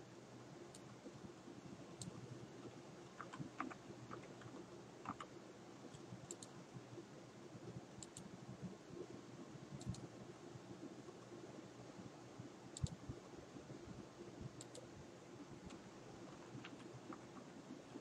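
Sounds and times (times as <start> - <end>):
low steady hum: 0.0 - 18.0
computer keyboard keystrokes: 3.1 - 5.3, 5.9 - 6.5, 9.8 - 10.0, 12.8 - 13.0
mouse clicks: 5.9 - 6.6, 8.0 - 8.3, 9.8 - 10.0, 12.8 - 13.0, 14.6 - 14.9.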